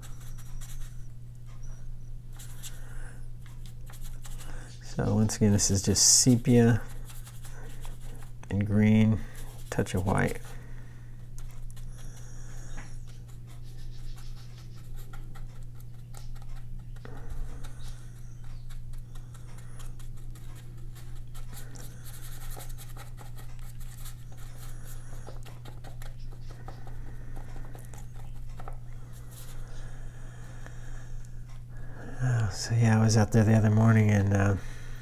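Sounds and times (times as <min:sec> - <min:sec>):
paintbrush scratching on paper: 0:00.0 - 0:01.1, 0:03.6 - 0:10.6, 0:11.4 - 0:29.6
steady low hum: 0:00.0 - 0:35.0.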